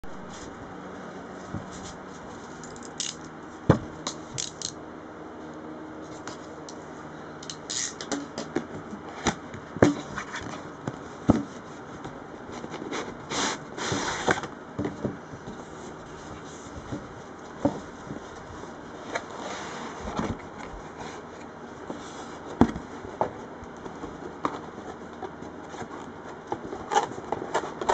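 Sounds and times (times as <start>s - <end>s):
cardboard scraping: 9.0s - 27.9s.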